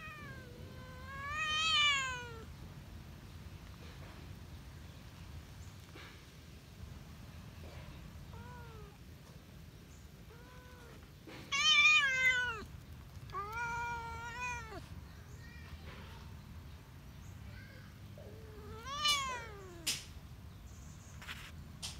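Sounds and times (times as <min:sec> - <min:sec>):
cat meowing: 0:00.0 - 0:02.5, 0:08.3 - 0:09.0, 0:10.2 - 0:12.7, 0:13.3 - 0:14.9, 0:18.2 - 0:20.0.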